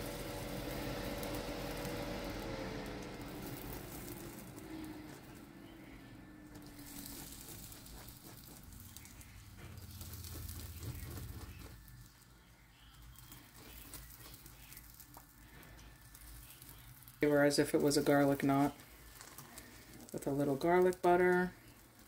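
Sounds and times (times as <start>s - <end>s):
basting brush dabbing: 0.0s - 22.0s
faint sizzle: 0.0s - 22.0s
low hum: 0.0s - 22.0s.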